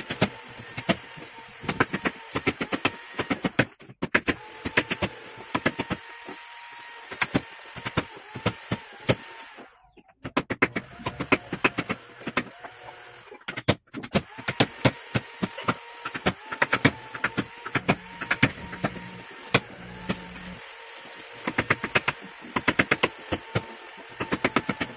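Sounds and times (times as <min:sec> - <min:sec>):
chisel struck into wood: 0:13.6 - 0:20.4.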